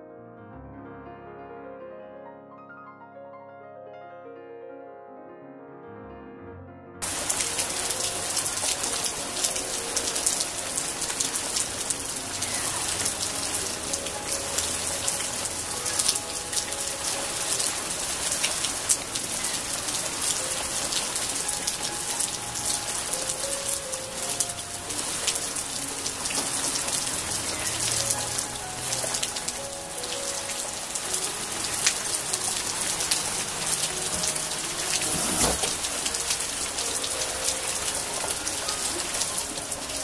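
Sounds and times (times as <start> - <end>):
sharp raindrop hits: 7.0 - 36.4
steady rain falling: 7.0 - 40.0.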